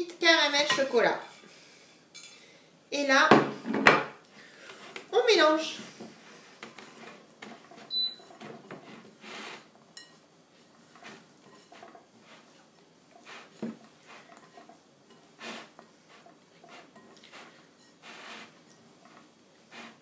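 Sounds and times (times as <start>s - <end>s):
hands rubbing dough: 10.5s - 20.0s.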